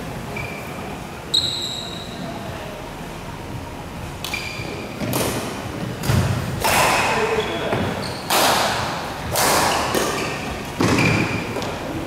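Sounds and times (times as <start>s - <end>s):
sneakers squeaking on court floor: 0.3s - 2.3s, 4.2s - 5.2s, 7.0s - 8.4s, 9.7s - 11.8s.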